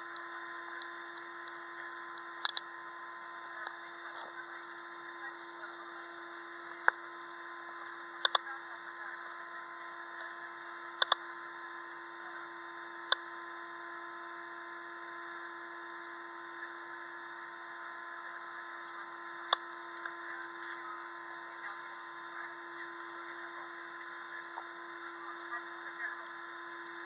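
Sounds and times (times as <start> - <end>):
sharp clicks: 2.2 - 2.7, 8.2 - 8.4, 11.0 - 11.2.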